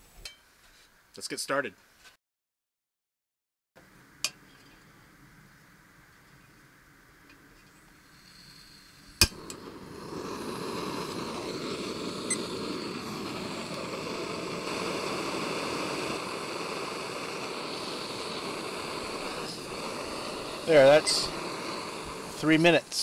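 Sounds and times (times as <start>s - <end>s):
stove burner rushing hiss: 4.2s - 23.0s
gas hissing from valve: 8.0s - 23.0s
stove igniter click: 9.2s - 16.0s.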